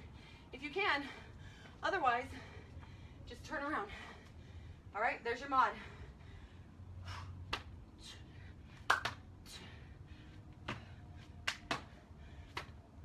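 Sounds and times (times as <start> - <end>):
hands slapping exercise mat: 7.5 - 7.7, 8.8 - 9.2, 10.6 - 12.8
hands clapping: 8.9 - 9.2, 11.4 - 11.9
feet landing: 10.6 - 12.8.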